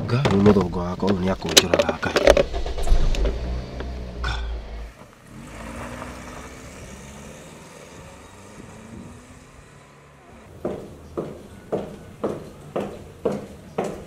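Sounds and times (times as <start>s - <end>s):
car driving on dirt road: 0.0s - 11.1s
car engine running: 2.0s - 10.5s.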